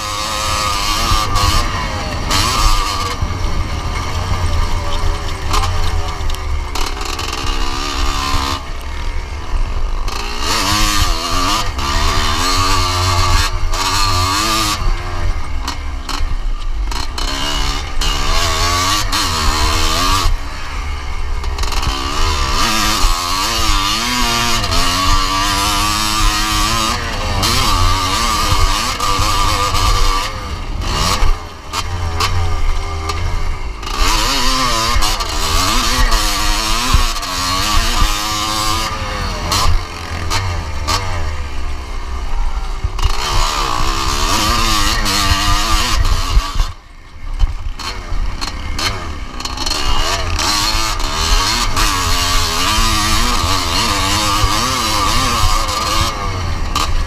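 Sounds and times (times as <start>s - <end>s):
two-stroke motorcycle engine revving: 0.0s - 57.0s.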